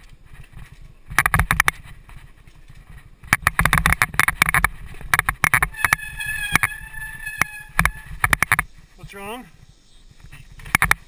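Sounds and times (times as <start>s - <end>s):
bike parts clattering over bumps: 0.0s - 8.8s
rumble of tyres and wind: 0.0s - 11.0s
high-pitched brake squeal: 5.7s - 8.2s.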